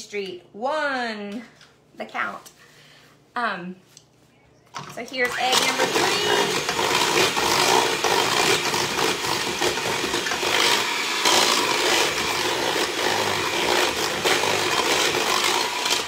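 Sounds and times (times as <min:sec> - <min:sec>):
electric hand mixer running: 0:05.3 - 0:16.0.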